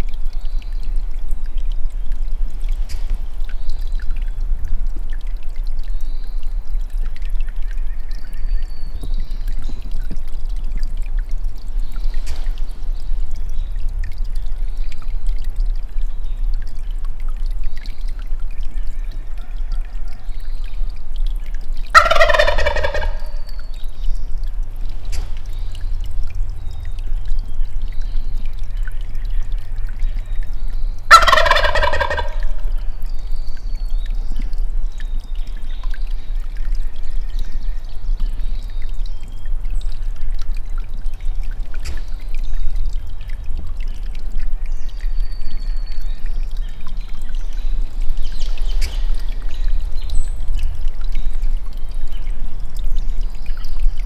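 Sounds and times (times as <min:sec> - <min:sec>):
turkey gobbling: 0:21.9 - 0:23.4, 0:31.1 - 0:32.7.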